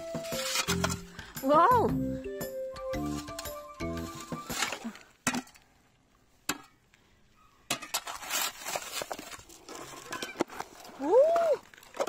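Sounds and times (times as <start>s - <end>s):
ice cracking and crunching: 8.1s - 12.0s.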